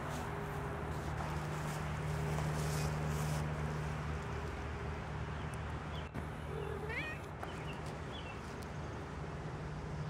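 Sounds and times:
cat meowing: 6.6 - 7.3.

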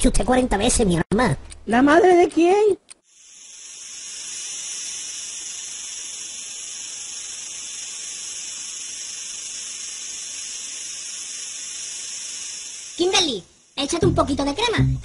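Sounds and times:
cicadas buzzing: 3.0 - 14.8.

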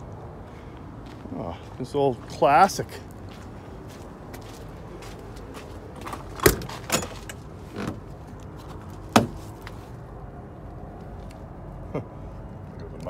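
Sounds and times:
truck door clunks and knocks: 6.0 - 8.2, 8.9 - 9.8.

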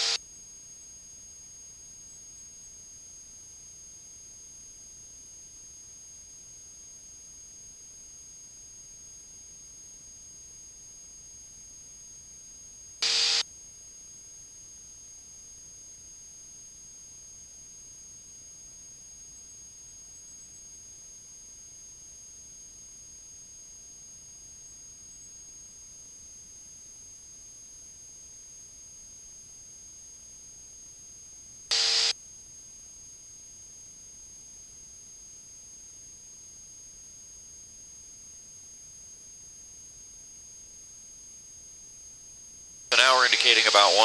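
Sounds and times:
high-pitched electrical whine: 13.0 - 13.4, 31.7 - 32.1
steady hiss: 13.0 - 13.4, 42.9 - 44.0.

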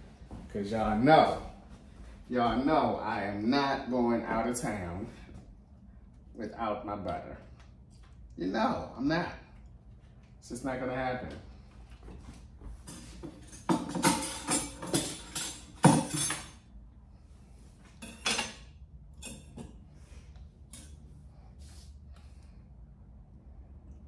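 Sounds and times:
cookware and utensils clattering: 12.8 - 16.6, 18.0 - 19.8.

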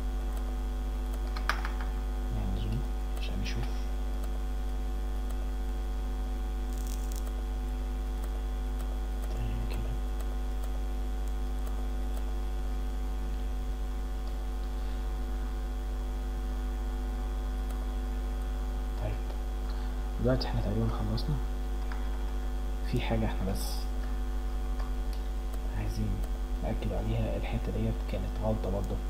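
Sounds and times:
electrical mains hum: 0.0 - 29.0.

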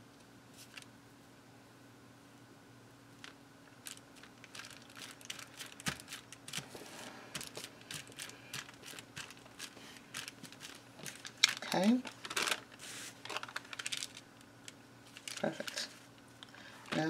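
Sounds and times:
thin paper crinkling: 3.2 - 16.2.

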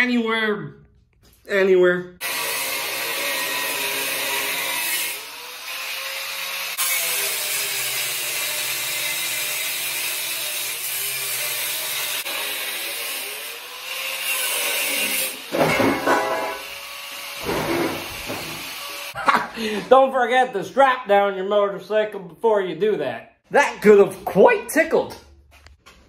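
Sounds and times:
angle grinder cutting steel: 2.2 - 19.2.

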